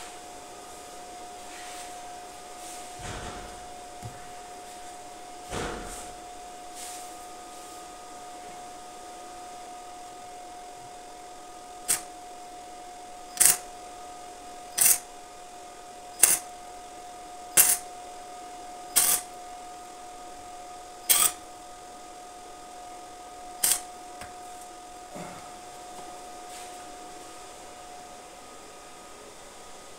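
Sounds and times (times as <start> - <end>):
faint whine: 0.0 - 29.9
arc welder tack welds: 11.8 - 12.1, 13.3 - 13.7, 14.8 - 15.1, 16.2 - 16.5, 17.6 - 17.8, 18.9 - 19.3, 21.0 - 21.4, 23.6 - 23.9.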